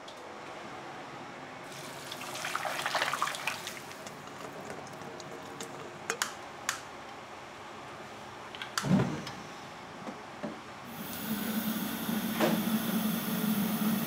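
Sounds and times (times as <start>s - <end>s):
steady background hum: 0.0s - 14.0s
water running or splashing: 1.7s - 4.9s.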